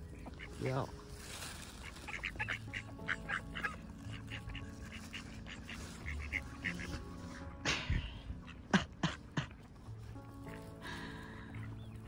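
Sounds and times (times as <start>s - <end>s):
ducks quacking rapidly: 1.8s - 9.7s.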